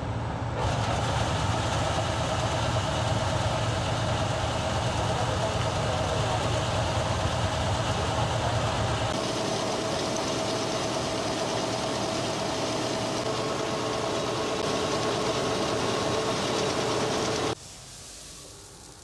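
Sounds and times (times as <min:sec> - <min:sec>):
machine drone: 0:00.0 - 0:17.6
hiss of pouring grain: 0:09.2 - 0:19.0.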